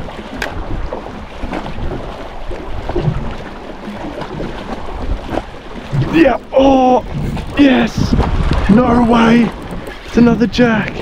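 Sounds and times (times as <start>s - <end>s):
water lapping against boat hull: 0.0s - 11.0s
wind buffeting microphone: 0.0s - 11.0s.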